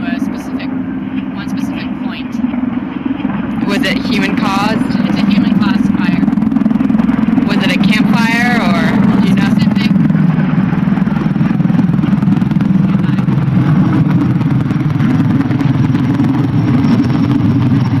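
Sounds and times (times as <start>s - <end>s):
low engine drone: 0.0s - 18.0s.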